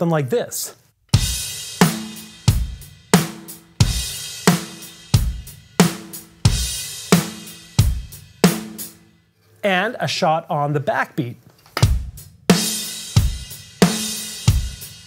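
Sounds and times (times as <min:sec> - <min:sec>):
rock drum beat: 0:01.1 - 0:09.0, 0:11.8 - 0:15.0.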